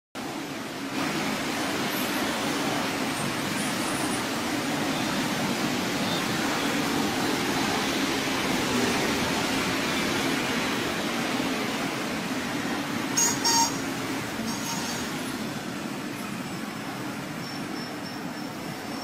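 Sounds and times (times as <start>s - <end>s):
train wheels rumbling on track: 0.2s - 19.0s
high-pitched train squeals: 13.2s - 15.3s.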